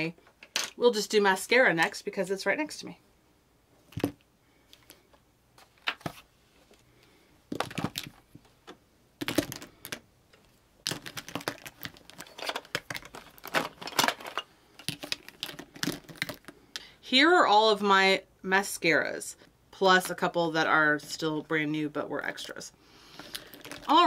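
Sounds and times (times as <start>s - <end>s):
plastic tubes clattering: 7.5s - 8.4s, 9.2s - 16.6s, 23.1s - 24.0s.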